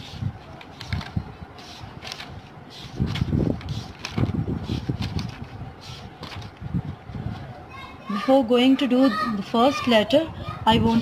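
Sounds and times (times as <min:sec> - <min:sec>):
book pages flipping and rustling: 0:00.0 - 0:06.7.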